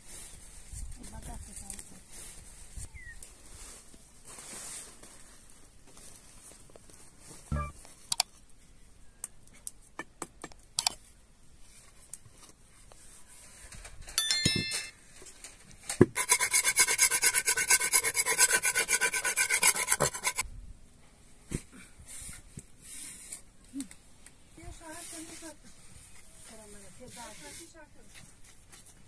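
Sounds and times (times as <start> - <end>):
metal scraper rasping on wood: 16.2 - 20.4.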